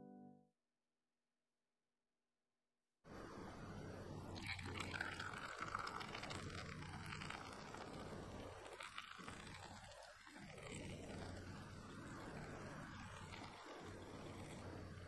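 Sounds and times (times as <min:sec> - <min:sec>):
water trickling onto coffee: 0:04.3 - 0:14.6.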